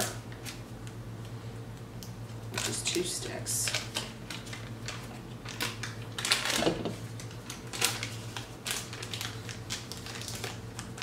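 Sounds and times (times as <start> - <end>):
paper wrapper crinkling: 2.6 - 11.0.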